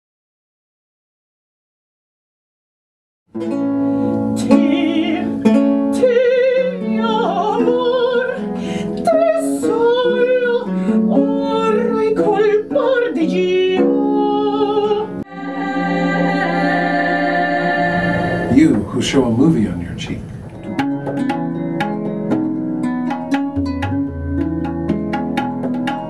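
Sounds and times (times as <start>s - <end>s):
plucked lute: 3.4s - 18.8s, 20.5s - 26.0s
woman singing with vibrato: 4.3s - 18.6s.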